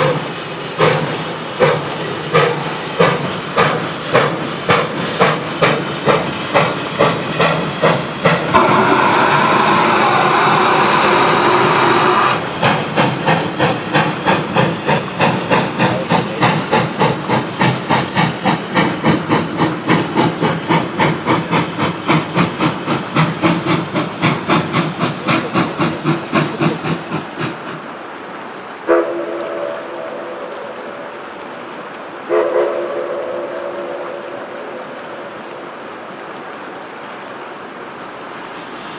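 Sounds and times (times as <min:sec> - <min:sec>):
steam locomotive exhaust chuffs: 0:00.0 - 0:28.1
steam hissing from cylinder cocks: 0:00.0 - 0:35.5, 0:37.9 - 0:38.9
steam whistle blast: 0:08.5 - 0:12.5, 0:28.9 - 0:30.0.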